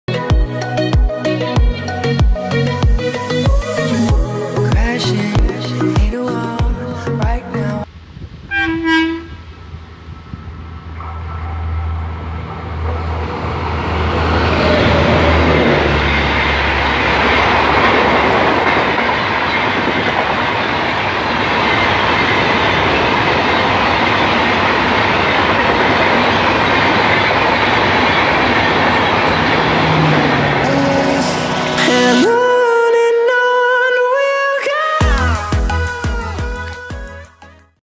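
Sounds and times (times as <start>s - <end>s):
train running hum: 0.1s - 7.2s, 7.8s - 32.9s
wheels rushing on rails: 7.8s - 32.8s
train horn: 8.5s - 9.6s.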